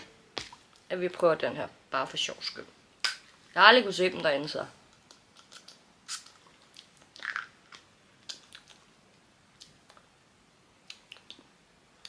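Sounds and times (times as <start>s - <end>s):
soft lip smacks: 5.4s - 8.9s, 10.8s - 11.5s.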